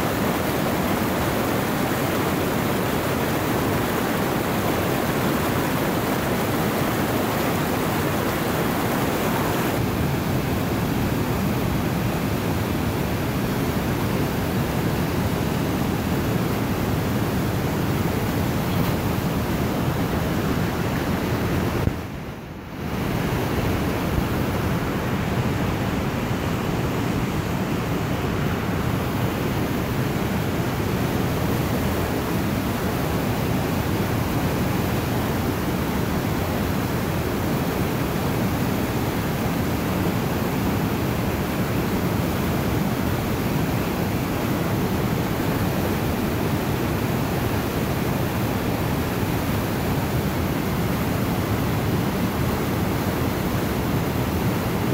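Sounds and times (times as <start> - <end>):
river rapids rushing: 0.0 - 21.9.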